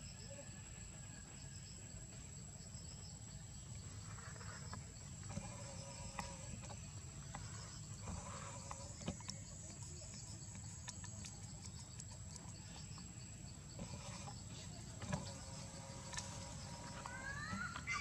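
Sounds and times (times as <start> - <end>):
high-pitched insect drone: 11.8 - 18.0.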